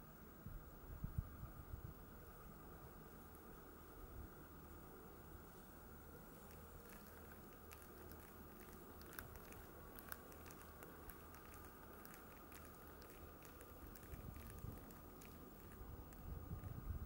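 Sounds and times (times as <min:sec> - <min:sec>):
thin ice crackling and ticking: 0:06.2 - 0:16.3.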